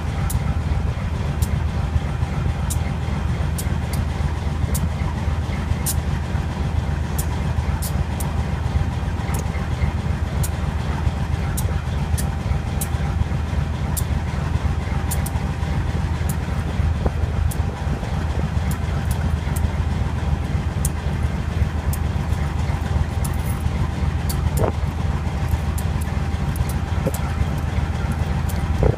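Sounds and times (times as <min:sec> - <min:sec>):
diesel locomotive engine rumbling: 0:00.0 - 0:28.9
sharp ticks: 0:00.2 - 0:00.5, 0:02.6 - 0:04.1, 0:04.7 - 0:05.0, 0:05.8 - 0:06.1, 0:07.1 - 0:08.4, 0:09.3 - 0:09.7, 0:10.4 - 0:10.7, 0:11.5 - 0:13.1, 0:13.9 - 0:14.2, 0:15.0 - 0:15.5, 0:16.2 - 0:28.9.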